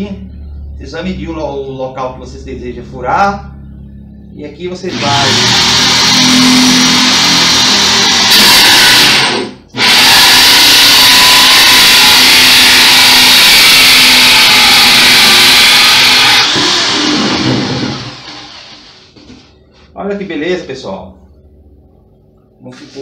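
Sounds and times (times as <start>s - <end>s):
electric drill cutting wood: 4.9s - 19.0s.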